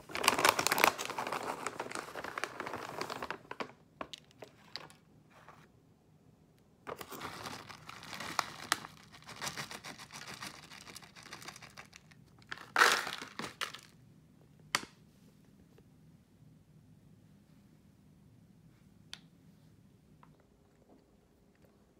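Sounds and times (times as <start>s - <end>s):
plastic pouch crinkling: 0.0s - 4.2s, 6.9s - 13.9s.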